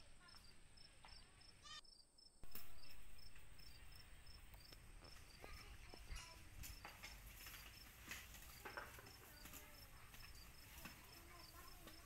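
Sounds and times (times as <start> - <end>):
crickets chirping: 0.0 - 12.0
faint clicks and rustles: 4.4 - 12.0.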